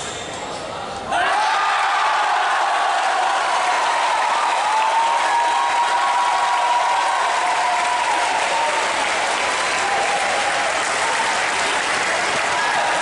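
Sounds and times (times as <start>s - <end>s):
crowd applauding: 1.6s - 13.0s.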